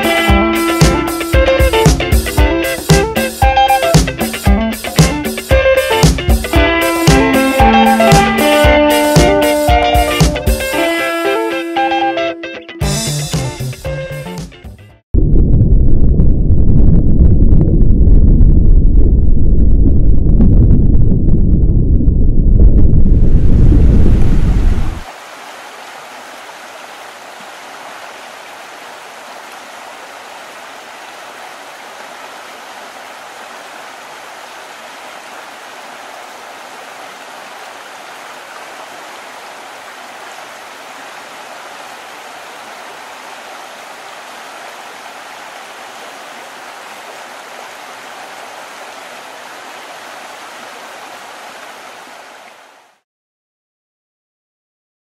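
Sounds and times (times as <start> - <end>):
loud low rumble: 15.1 - 25.0
river water rushing: 25.0 - 53.0.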